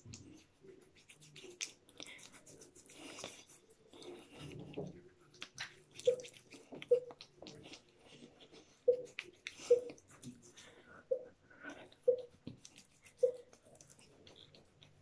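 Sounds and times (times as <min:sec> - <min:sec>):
fingertips rubbing wet facial scrub: 0:00.0 - 0:04.5, 0:12.1 - 0:15.0.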